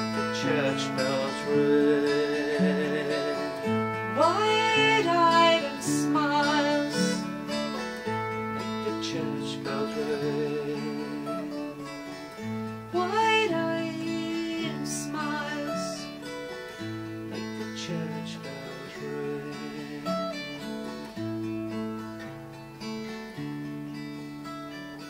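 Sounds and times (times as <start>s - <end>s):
acoustic guitars playing folk music: 0.0s - 25.0s.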